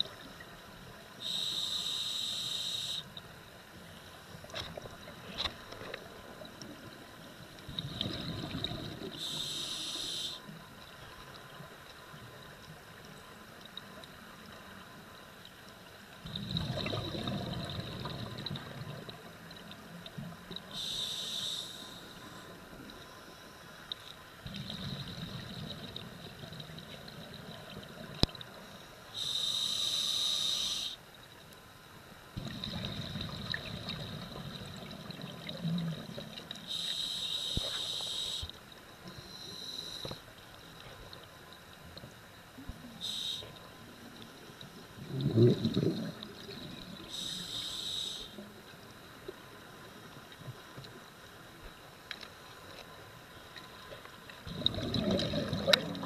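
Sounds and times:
regulator hissing inhalation: 1.2s - 3.1s, 9.2s - 10.5s, 20.7s - 22.2s, 29.2s - 31.0s, 36.7s - 38.6s, 43.0s - 43.5s, 47.1s - 48.4s
rumbling exhaled bubbles: 7.7s - 9.2s, 16.2s - 19.2s, 32.4s - 36.4s, 45.0s - 47.0s, 54.4s - 56.0s.

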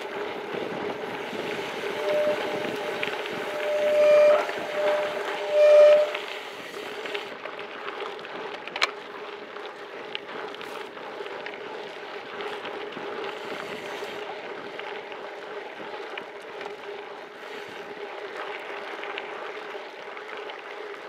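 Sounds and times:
brakes squealing: 0.0s - 7.4s
bike tyres rumbling on dirt: 0.0s - 21.0s
wind on microphone: 0.3s - 6.8s.

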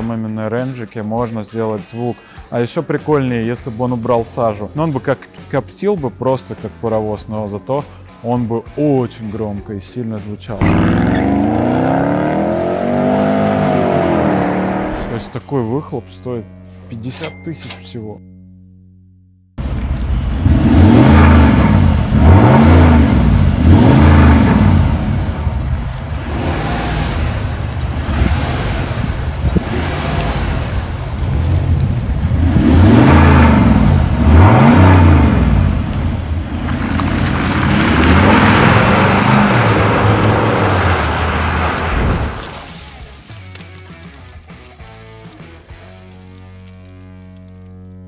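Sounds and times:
car engine revving: 10.6s - 15.4s, 19.6s - 42.6s.

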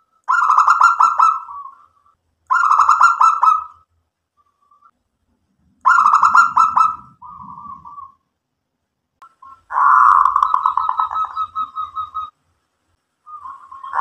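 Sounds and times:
dove cooing: 2.5s - 3.8s, 5.9s - 8.2s, 9.4s - 12.3s, 13.3s - 14.0s.

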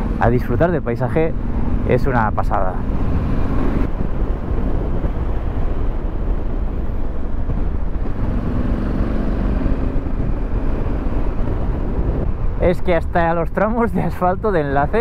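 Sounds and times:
motorcycle engine running: 0.0s - 0.2s
wind rush on microphone: 0.0s - 15.0s.

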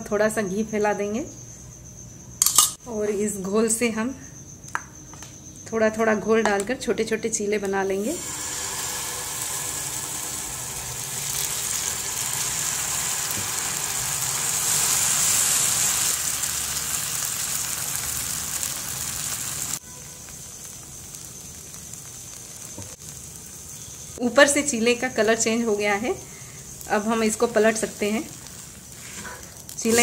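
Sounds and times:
batter sizzling on hot pan: 7.9s - 30.0s.

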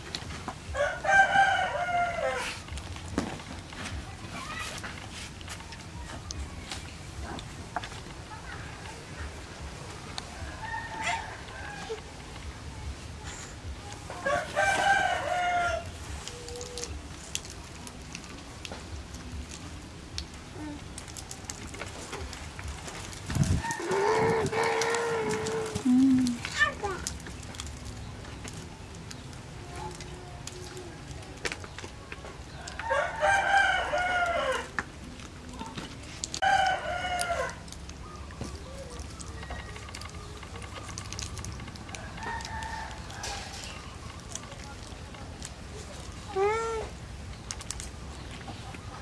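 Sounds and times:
rooster crowing: 0.7s - 2.6s, 10.4s - 12.0s, 14.2s - 15.9s, 23.6s - 25.8s, 32.6s - 34.7s, 36.4s - 37.6s.

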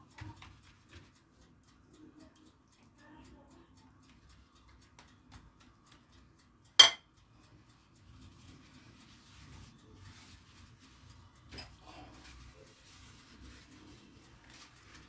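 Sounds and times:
brush clinking against bowl: 6.8s - 7.1s
pastry sheets rustling: 8.1s - 15.0s.

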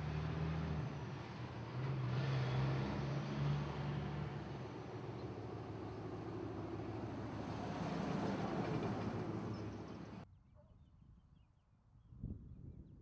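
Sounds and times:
cars driving past: 0.0s - 10.2s.

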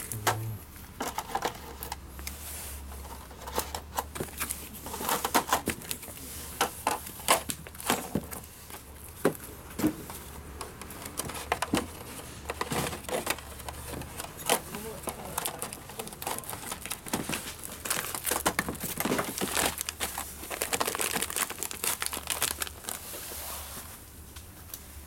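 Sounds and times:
tool accessories clicking and tapping: 5.1s - 17.4s.

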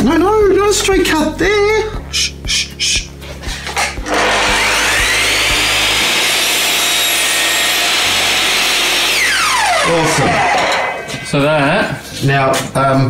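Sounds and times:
mitre saw cutting wood: 4.0s - 11.4s.

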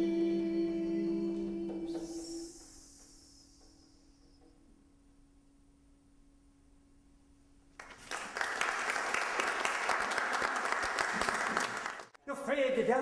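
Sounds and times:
audience applause: 7.8s - 12.2s.

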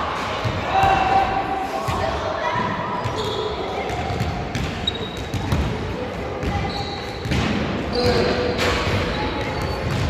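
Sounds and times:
players' voices: 0.0s - 10.0s
sneaker squeaks on floor: 2.9s - 5.6s, 6.4s - 10.0s.

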